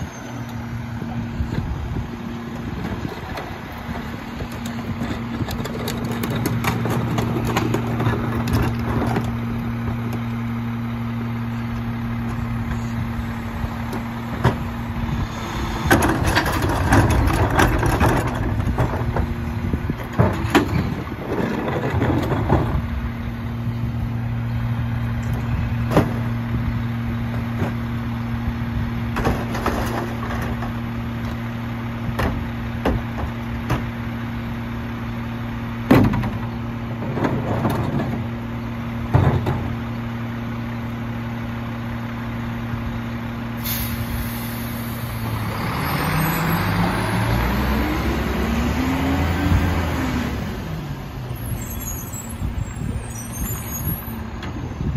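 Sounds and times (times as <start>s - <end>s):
garbage truck engine humming: 0.0s - 54.9s
air hiss: 43.6s - 45.2s.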